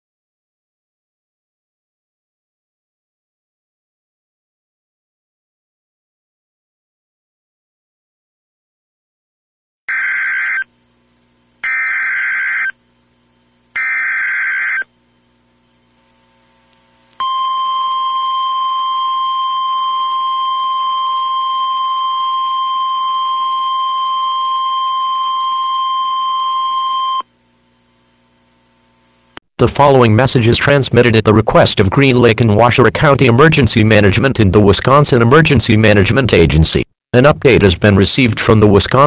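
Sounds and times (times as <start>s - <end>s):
emergency attention tone: 9.9s - 10.7s
two-tone digital data bursts: 9.9s - 10.7s, 11.6s - 12.7s, 13.8s - 14.9s.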